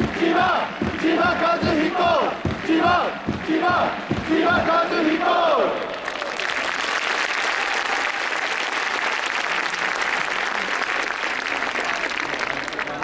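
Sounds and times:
stadium crowd clapping: 0.0 - 13.0.

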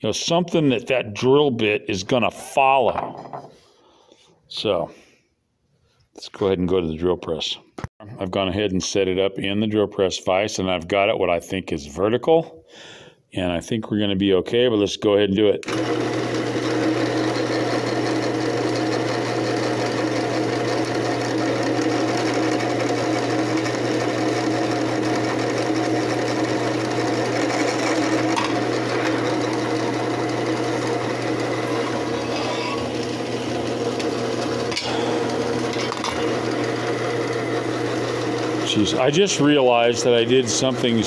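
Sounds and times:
drill press boring into wood: 15.6 - 41.0.

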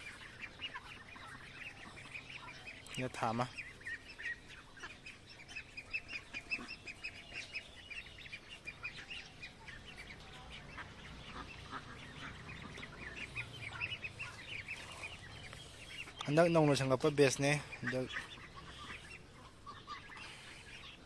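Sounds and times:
ducklings peeping: 0.0 - 21.0.

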